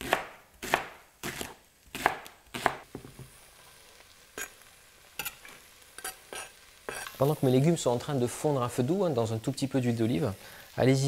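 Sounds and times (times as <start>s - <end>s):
knife chopping on cutting board: 0.0s - 3.3s.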